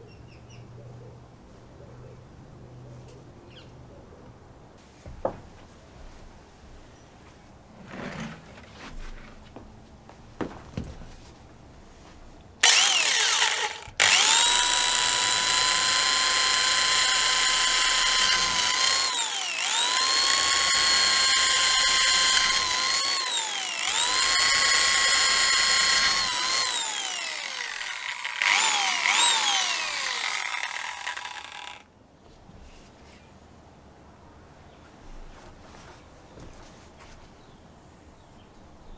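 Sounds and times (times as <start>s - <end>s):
electric drill whining into wood: 12.6s - 31.9s.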